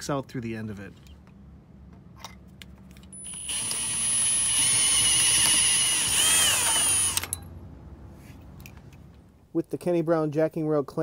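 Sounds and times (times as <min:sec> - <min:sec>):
electric drill whining: 0:03.1 - 0:07.4.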